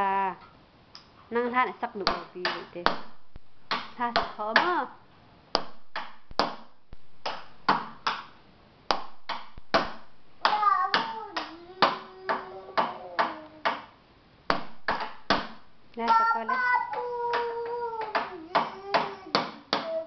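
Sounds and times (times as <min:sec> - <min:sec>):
knocking on wooden boxes: 0:08.9 - 0:13.9, 0:14.5 - 0:15.7
person singing: 0:10.5 - 0:13.8, 0:16.0 - 0:20.0.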